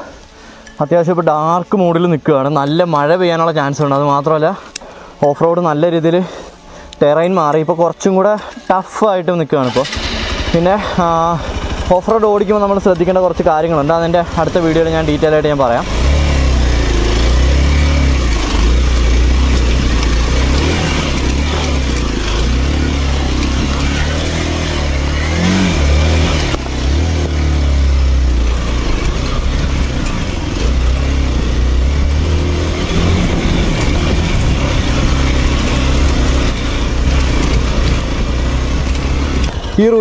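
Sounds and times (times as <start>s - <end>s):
wind and ride noise: 0.0s - 40.0s
motorcycle engine revving: 9.6s - 40.0s.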